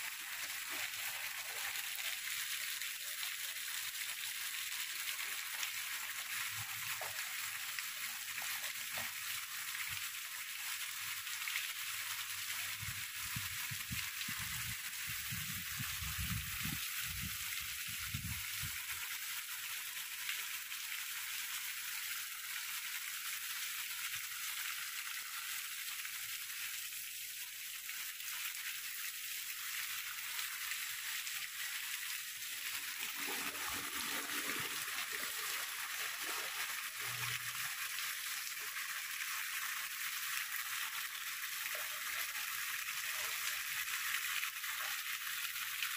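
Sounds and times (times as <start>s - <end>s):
water streaming off roof edge: 0.0s - 22.8s, 29.5s - 45.9s
heavy rain on grass and leaves: 32.9s - 39.2s.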